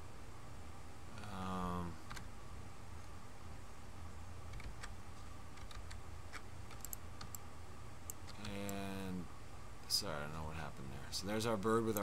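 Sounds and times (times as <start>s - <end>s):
low steady hum: 0.0s - 12.0s
keyboard and mouse clicks: 4.5s - 7.4s, 8.0s - 8.8s.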